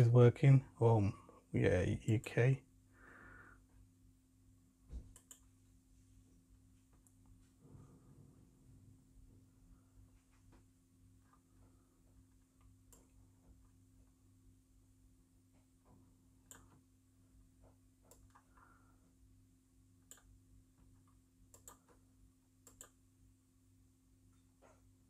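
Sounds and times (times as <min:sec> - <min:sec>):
low steady hum: 0:00.0 - 0:25.0
computer mouse clicks: 0:05.1 - 0:05.6, 0:12.6 - 0:13.2, 0:16.4 - 0:16.8, 0:18.0 - 0:18.6, 0:20.0 - 0:22.0, 0:22.6 - 0:23.0.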